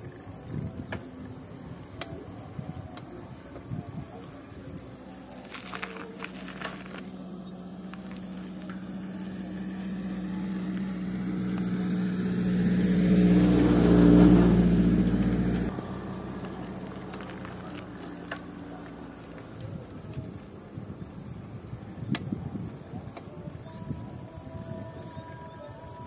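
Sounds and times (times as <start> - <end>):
engine running: 3.0 - 21.0.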